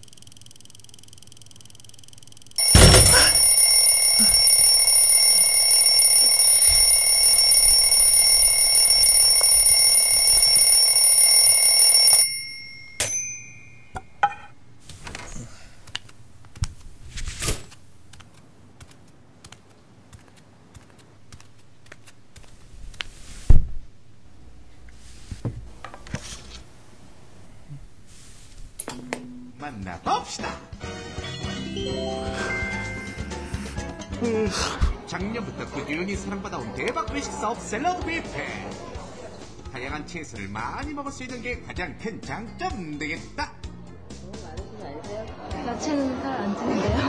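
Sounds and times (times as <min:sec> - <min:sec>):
electric alarm bell ringing: 0:00.4 - 0:14.0, 0:31.8 - 0:33.7.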